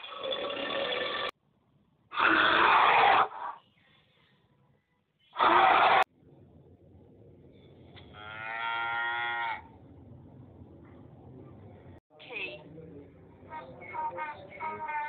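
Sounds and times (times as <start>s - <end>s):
rough animal calls: 2.1s - 3.6s, 5.3s - 6.1s.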